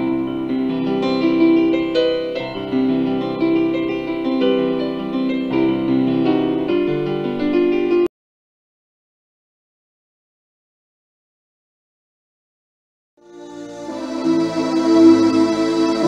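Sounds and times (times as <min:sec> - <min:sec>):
keyboard melody and chords: 0:00.0 - 0:08.1, 0:13.2 - 0:16.0.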